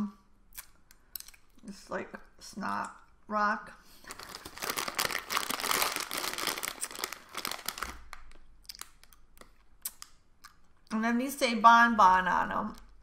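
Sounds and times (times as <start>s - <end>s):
candy wrappers crinkling: 4.0s - 10.6s.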